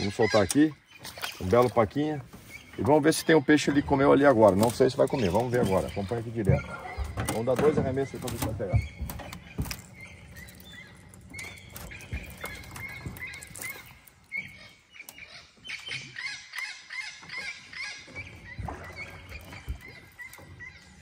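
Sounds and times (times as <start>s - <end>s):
wild birds calling: 0.0s - 21.0s.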